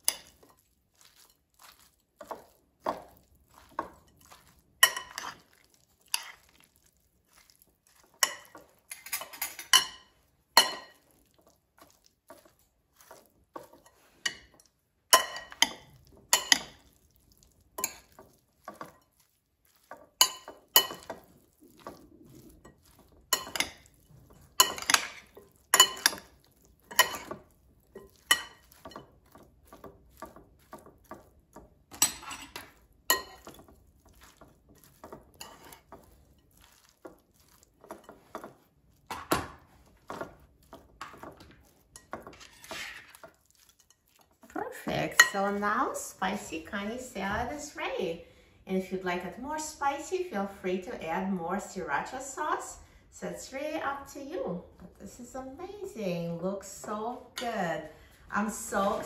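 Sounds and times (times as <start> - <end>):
metal spoons clinking on glass bowl: 8.1 - 11.0, 14.3 - 16.8, 20.2 - 21.2, 22.6 - 29.1, 31.9 - 33.7.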